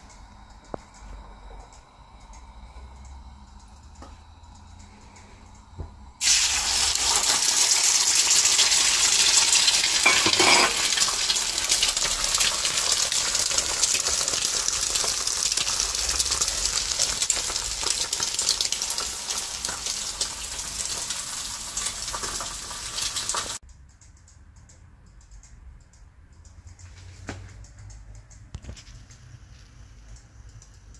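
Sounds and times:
eggs sizzling in a frying pan: 0:06.2 - 0:23.6.

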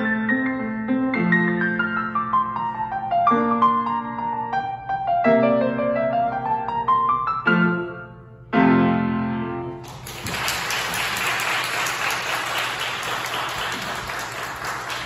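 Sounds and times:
piano chords: 0:00.0 - 0:15.0
applause: 0:09.8 - 0:15.0.

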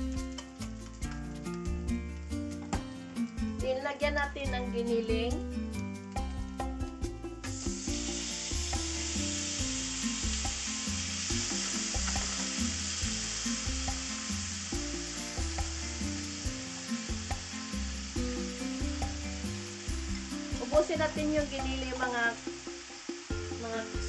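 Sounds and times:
background music: 0:00.0 - 0:24.0
meat sizzling in a frying pan: 0:07.5 - 0:24.0.

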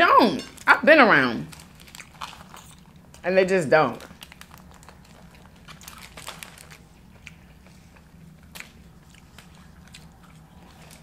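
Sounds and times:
crispy fries crunching: 0:00.5 - 0:03.3, 0:03.9 - 0:11.0
chewing: 0:01.6 - 0:03.2, 0:04.2 - 0:11.0.

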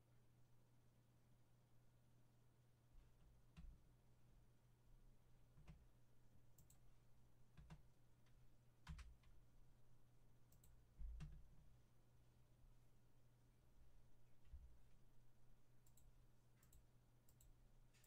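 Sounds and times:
computer mouse clicks: 0:06.6 - 0:06.8, 0:10.5 - 0:11.4, 0:15.8 - 0:18.0.

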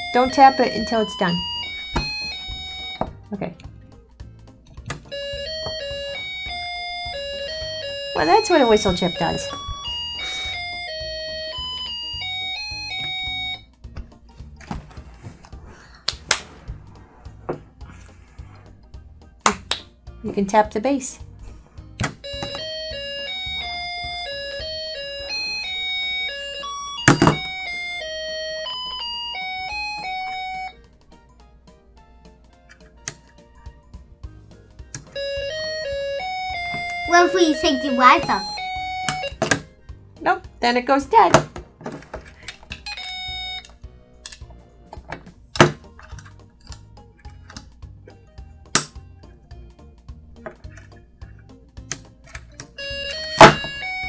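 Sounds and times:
electronic tune from small speaker: 0:00.0 - 0:03.1, 0:05.1 - 0:13.7, 0:22.2 - 0:30.8, 0:35.2 - 0:39.5, 0:42.8 - 0:43.7, 0:52.8 - 0:54.0
electronic beeping tune: 0:05.2 - 0:12.0, 0:35.2 - 0:39.5.

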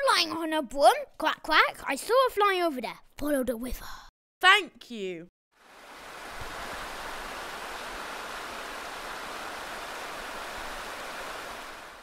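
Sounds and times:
running water rushing: 0:05.6 - 0:12.0.

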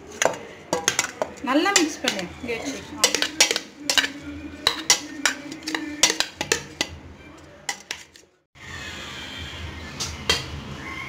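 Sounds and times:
metal bowl clinking and knocking: 0:00.1 - 0:07.0, 0:07.6 - 0:08.2.

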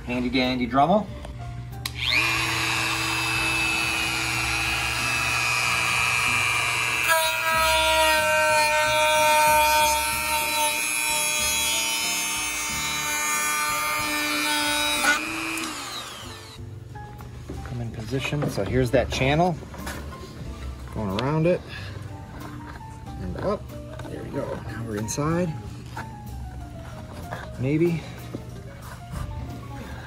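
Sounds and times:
rotary tool cutting metal: 0:01.9 - 0:16.6.

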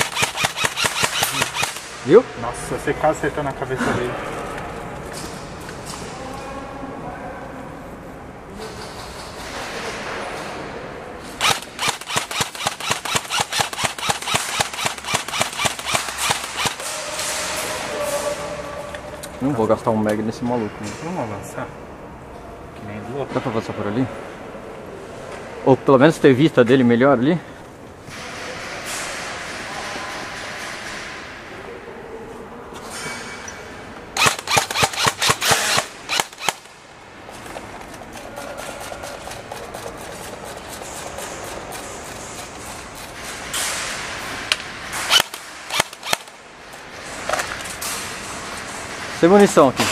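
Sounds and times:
airsoft rifle shots: 0:00.0 - 0:02.1, 0:11.4 - 0:17.8, 0:34.2 - 0:36.8, 0:44.6 - 0:46.4.

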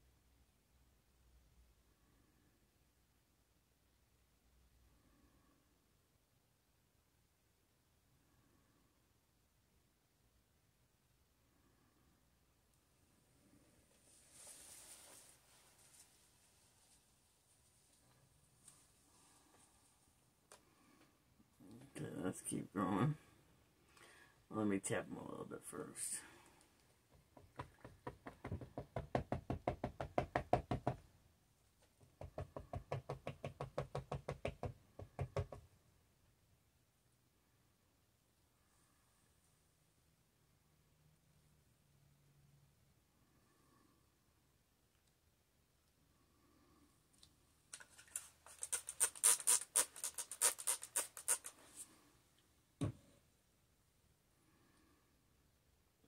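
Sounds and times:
spray bottle spritzing: 0:47.8 - 0:51.6.

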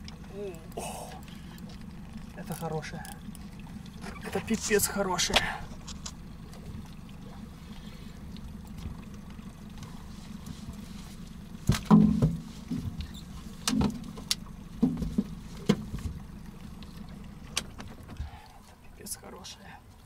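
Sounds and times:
steady low hum: 0:00.0 - 0:20.0
knocks and thuds on metal boat: 0:11.6 - 0:16.3.

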